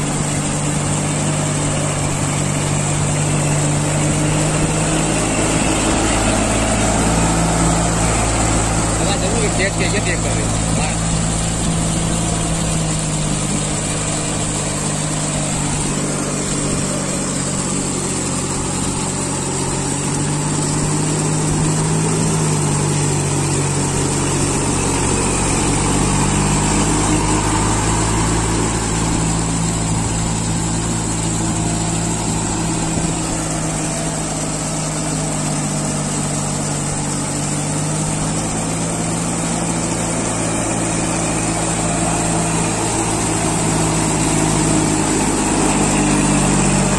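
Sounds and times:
tractor diesel engine running: 0.0 - 46.9.

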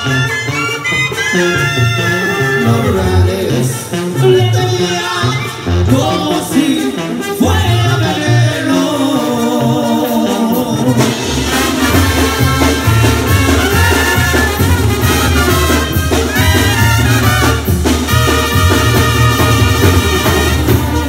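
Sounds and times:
brass band playing: 0.0 - 21.0
drums: 0.0 - 21.0.

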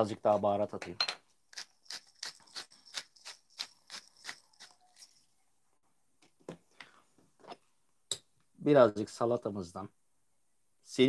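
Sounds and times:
spice mill grinding: 1.5 - 5.3.

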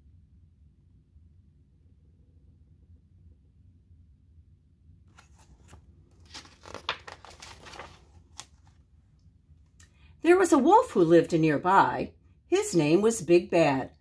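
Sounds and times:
paper pages rustling: 5.1 - 8.8.

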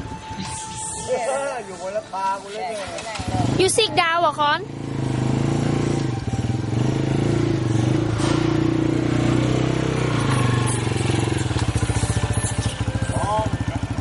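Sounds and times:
small motorcycle engine running: 2.8 - 14.0.

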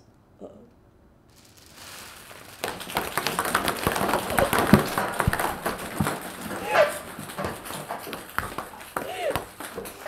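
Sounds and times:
ping pong balls bouncing: 2.6 - 10.0.

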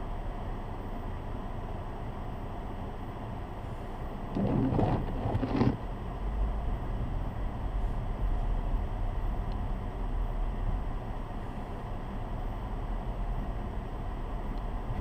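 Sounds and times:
low engine rumble: 0.0 - 15.0
tyre and road noise: 4.2 - 6.4.

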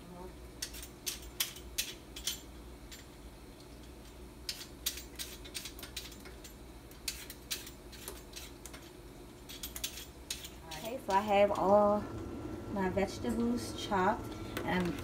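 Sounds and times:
vegetable peeler scraping potato: 9.5 - 11.2.

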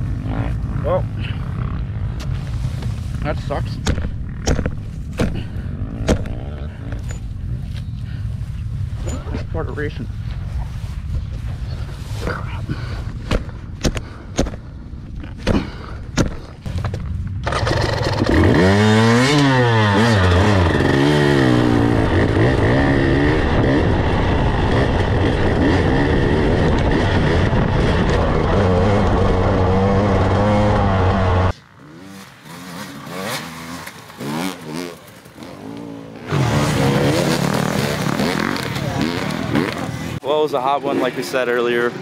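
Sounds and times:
dirt bike engine revving: 5.3 - 7.2, 17.4 - 40.2
fainter bike revving: 17.4 - 40.2.

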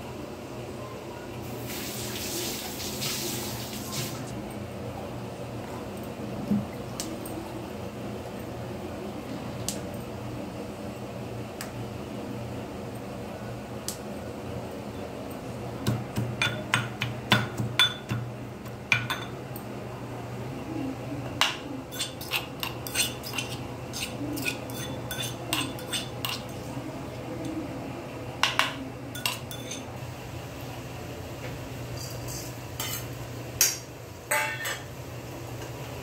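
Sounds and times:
steady low hum: 2.8 - 36.0.

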